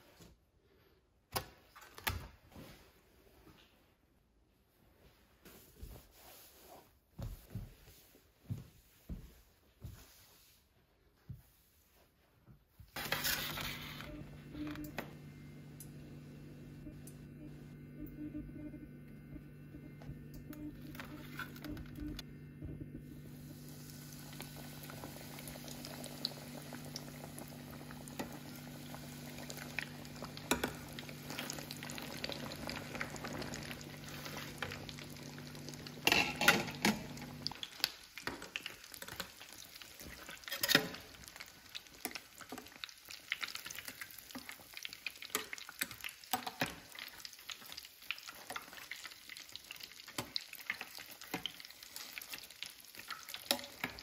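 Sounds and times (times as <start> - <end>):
steady low hum: 13.0 - 37.6
food deep-frying in oil: 23.4 - 54.0.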